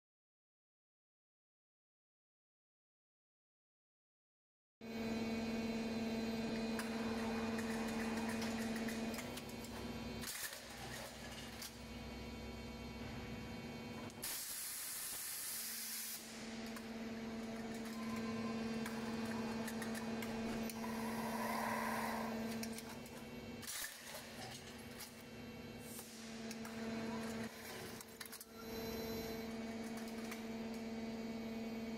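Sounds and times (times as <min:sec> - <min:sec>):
strapping machine humming: 0:05.4 - 0:14.3, 0:16.3 - 0:31.1.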